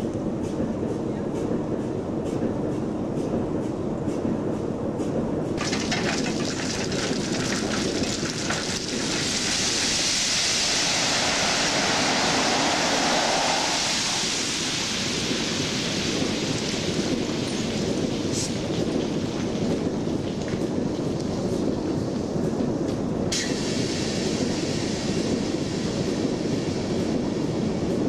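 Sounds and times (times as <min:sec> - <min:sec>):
low rumble: 0:00.0 - 0:28.0
stones clattering out of railway car: 0:05.6 - 0:13.2.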